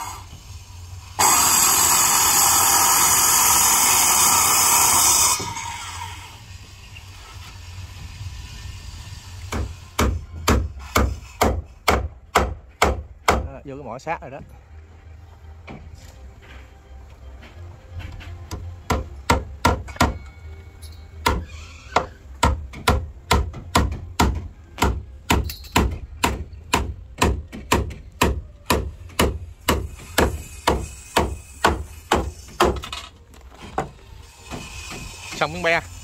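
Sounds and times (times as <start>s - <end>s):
hammer blows on wood: 9.5s - 13.5s, 21.2s - 32.8s.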